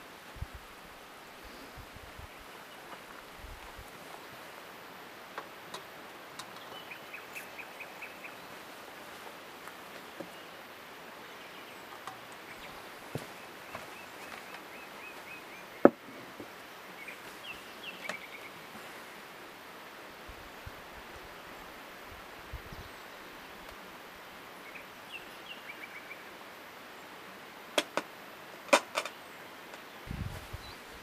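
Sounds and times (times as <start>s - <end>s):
outdoor background hiss: 0.0s - 31.0s
bird singing trills: 6.4s - 8.6s, 17.0s - 18.7s.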